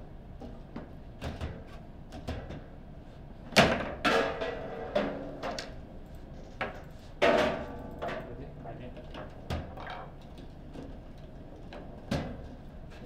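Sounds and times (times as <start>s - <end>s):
foosball ball and rods clacking: 9.4s - 10.2s.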